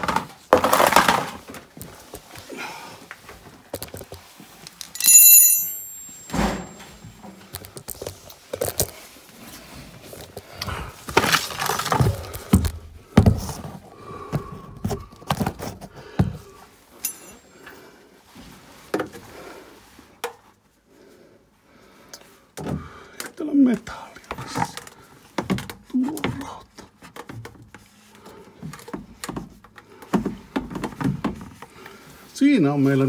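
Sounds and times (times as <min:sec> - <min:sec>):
tools clattering: 0:04.8 - 0:07.2, 0:17.0 - 0:17.5.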